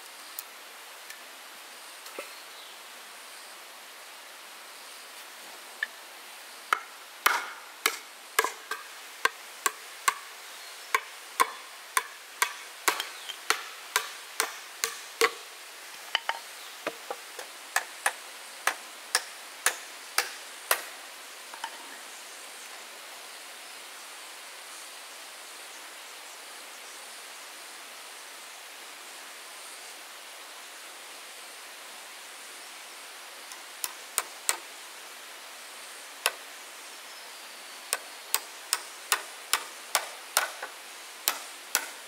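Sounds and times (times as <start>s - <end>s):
sharp hand tool strikes: 6.7s - 10.3s, 11.0s - 15.4s, 16.2s - 20.9s, 37.9s - 42.0s.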